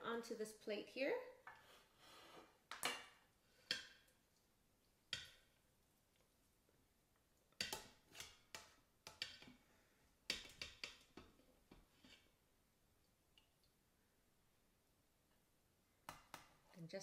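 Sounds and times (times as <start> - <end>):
metal tongs clinking on steel pot: 7.6 - 9.5.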